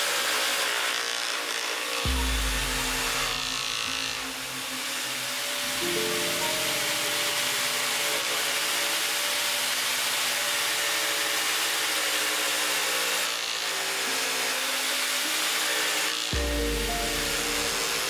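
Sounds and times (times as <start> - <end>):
saw cutting plywood: 7.3 - 16.4.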